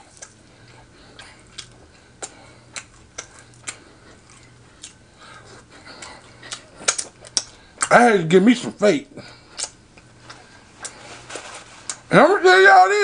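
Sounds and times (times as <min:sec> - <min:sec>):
wet chewing mouth sounds: 0:00.0 - 0:07.9, 0:09.2 - 0:11.1
low steady hum: 0:00.0 - 0:13.0.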